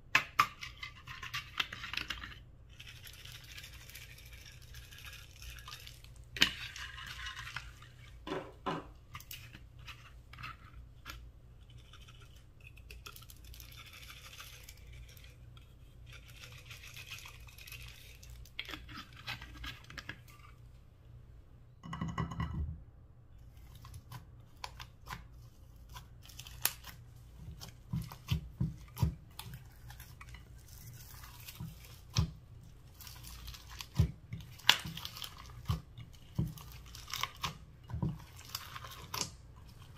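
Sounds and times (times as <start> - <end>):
fingers tapping and mixing slime: 0.0 - 2.3, 23.6 - 39.9.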